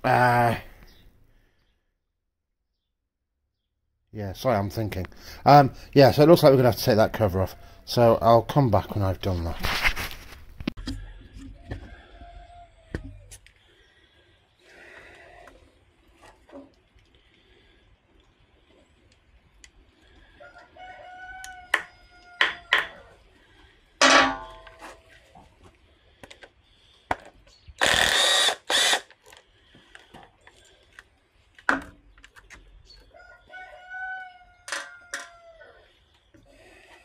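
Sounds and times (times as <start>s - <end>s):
rooster crowing: 11.5s - 13.2s, 20.4s - 23.2s, 33.1s - 35.8s
metal tools clanking: 24.0s - 25.0s
cordless driver whirring: 27.8s - 29.2s.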